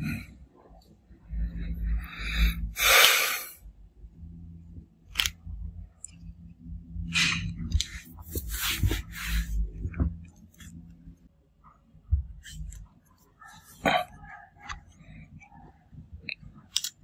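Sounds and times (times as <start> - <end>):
faint low hum: 0.0 - 17.0
hands rustling and scraping phone frame: 7.1 - 10.9.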